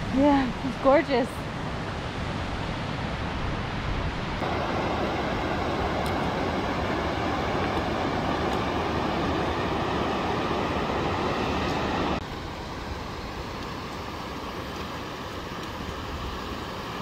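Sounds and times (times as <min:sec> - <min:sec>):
creek rushing over rocks: 0:04.4 - 0:12.2.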